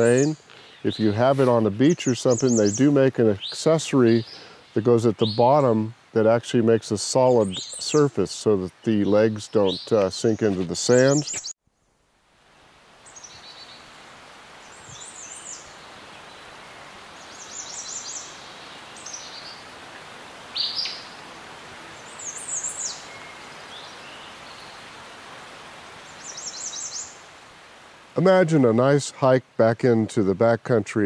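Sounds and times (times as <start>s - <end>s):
small birds chirping: 0.0s - 11.6s, 14.6s - 21.2s, 21.9s - 24.9s, 26.0s - 27.2s
background hiss: 0.0s - 31.0s.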